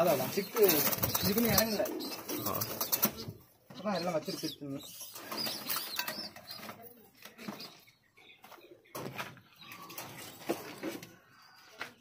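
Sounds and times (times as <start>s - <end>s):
pigeons cooing: 0.0s - 7.8s.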